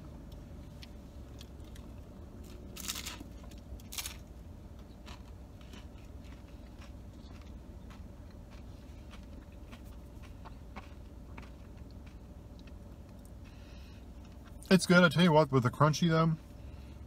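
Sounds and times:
taco shell crunching: 0:00.3 - 0:13.6
quiet chewing: 0:04.7 - 0:14.7.

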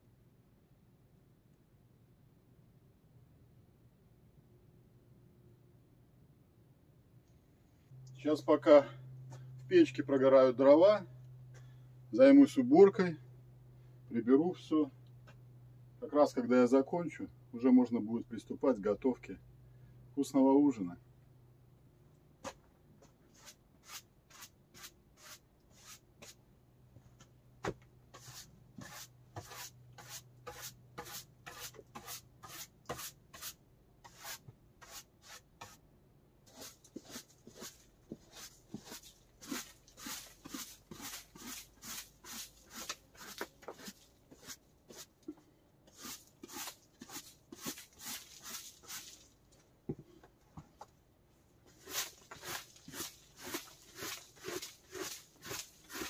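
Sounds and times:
broom sweeping the floor: 0:23.3 - 0:26.4, 0:28.1 - 0:35.8, 0:36.5 - 0:45.3, 0:45.9 - 0:49.4, 0:51.7 - 0:56.0.

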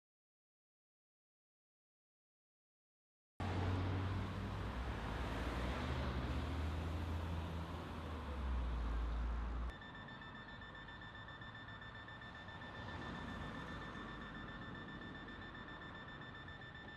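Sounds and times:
steady high-pitched whine: 0:09.7 - 0:16.9.

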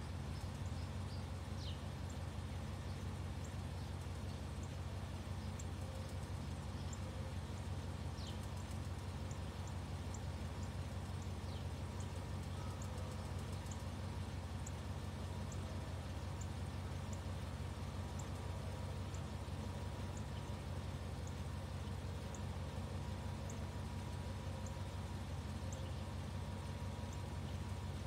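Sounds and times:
birds chirping: 0:00.0 - 0:28.0
low background rumble: 0:00.0 - 0:28.0.

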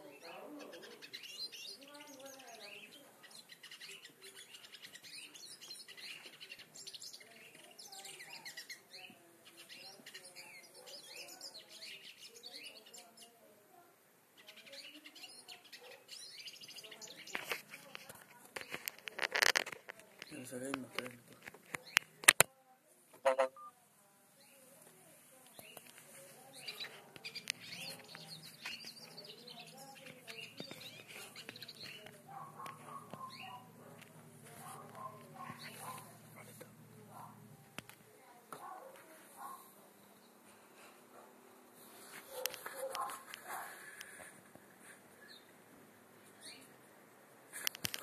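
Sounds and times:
bird twittering song: 0:00.0 - 0:13.4, 0:14.4 - 0:19.6, 0:25.5 - 0:37.4, 0:46.2 - 0:46.8.

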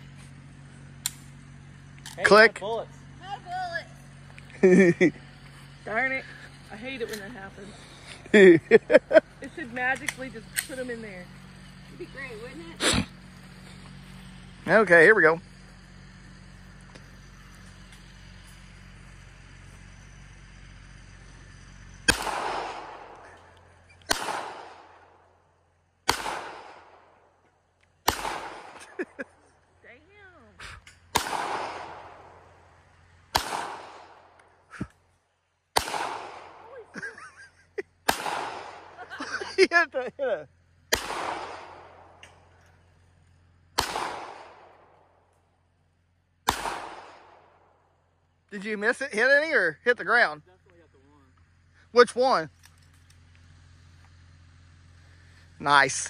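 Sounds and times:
faint outdoor background: 0:00.0 - 0:56.0
handgun shots with echo: 0:22.1 - 0:23.2, 0:24.1 - 0:24.9, 0:28.1 - 0:28.8, 0:31.1 - 0:32.2, 0:33.4 - 0:34.0, 0:35.8 - 0:36.6, 0:38.1 - 0:38.9, 0:40.9 - 0:42.0, 0:43.8 - 0:44.8, 0:46.5 - 0:47.4.

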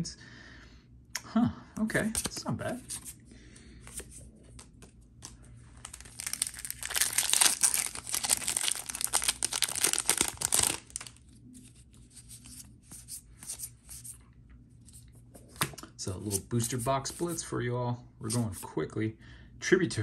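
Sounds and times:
cards rustling and clicking: 0:03.8 - 0:14.2
foil wrapper tearing and crinkling: 0:05.8 - 0:11.3.

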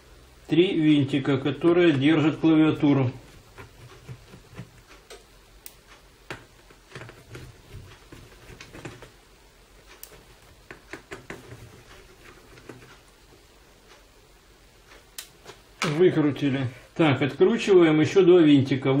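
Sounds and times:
screwdriver clicks and taps: 0:09.9 - 0:12.9.

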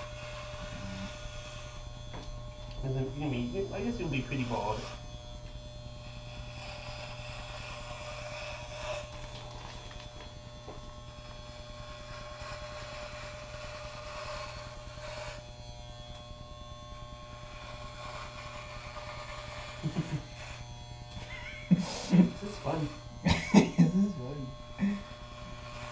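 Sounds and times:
electric hair clippers buzzing: 0:00.0 - 0:25.9.

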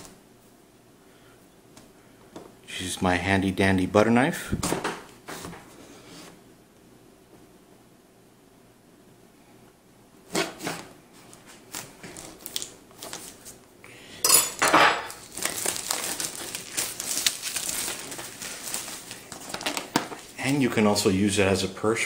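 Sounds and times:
plastic wrap tearing and crinkling: 0:10.3 - 0:13.6, 0:15.0 - 0:20.8.

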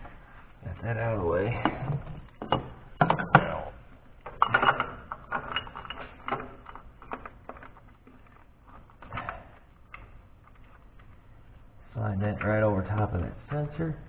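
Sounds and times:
clicks and knocks of tools: 0:04.2 - 0:11.2.

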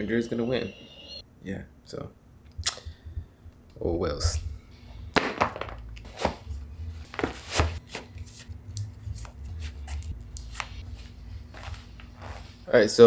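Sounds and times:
low steady hum: 0:00.0 - 0:13.0
shoes tapping and scuffing on tile: 0:07.1 - 0:08.4.

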